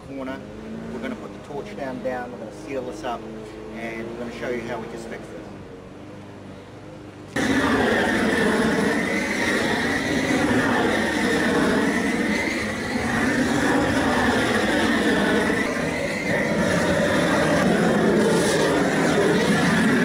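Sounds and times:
torch flame rushing: 7.3 - 20.0.

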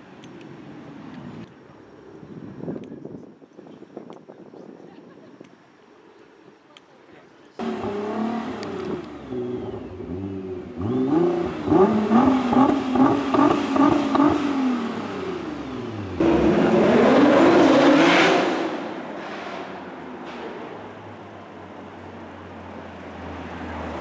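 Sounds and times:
car accelerating past: 7.6 - 20.0
car engine revving: 7.6 - 20.0.

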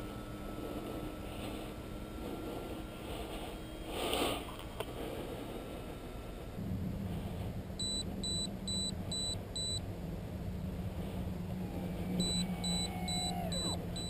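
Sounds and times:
model aircraft motor whine: 0.0 - 6.6, 8.2 - 14.0
steady low hum: 0.0 - 14.0.

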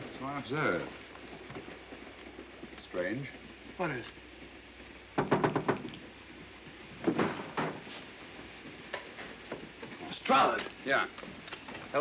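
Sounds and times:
heavy door knock: 5.2 - 5.9.

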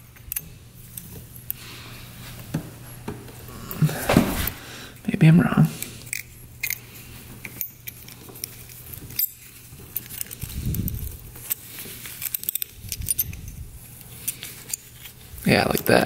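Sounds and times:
small metal parts clicking: 6.0 - 16.0.

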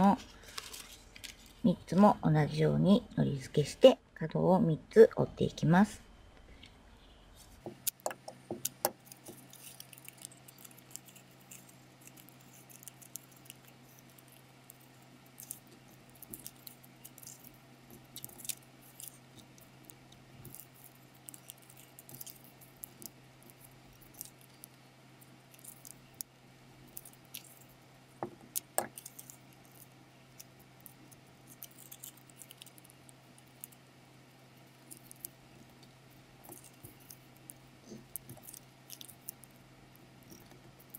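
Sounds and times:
low hum: 0.0 - 8.0
paper rustling and crinkling: 0.2 - 1.6.

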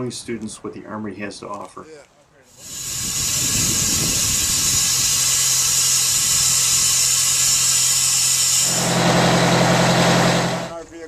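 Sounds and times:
compressed air hissing: 2.5 - 10.7.

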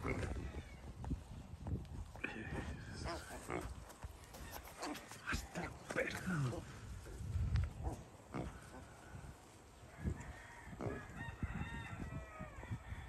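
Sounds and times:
pigs grunting: 0.0 - 0.5, 2.2 - 3.8, 7.8 - 9.1
rooster crowing: 2.2 - 3.5, 9.9 - 13.0.

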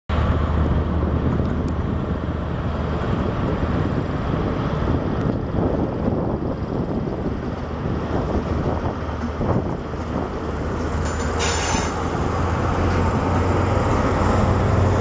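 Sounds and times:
diesel train engine drone: 0.1 - 15.0.

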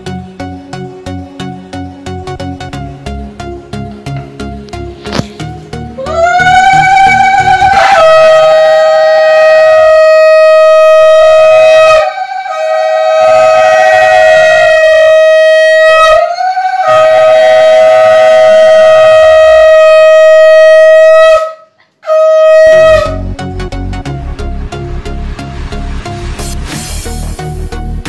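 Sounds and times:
music with a beat: 0.0 - 6.0, 23.2 - 28.0
conch shell blasts: 16.9 - 23.3.

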